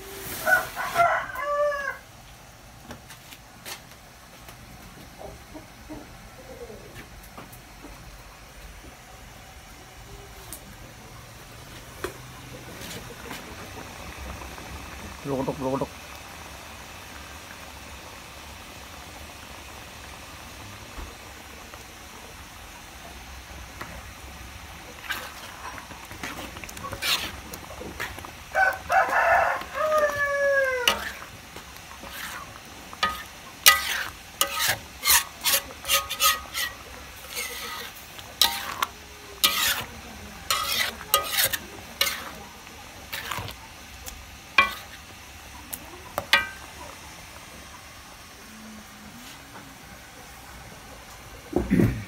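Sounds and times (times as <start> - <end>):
rooster crowing: 0.4 - 2.1, 28.5 - 31.3
metal spoon scraping a wok: 24.8 - 28.4, 30.8 - 45.2, 46.1 - 46.8.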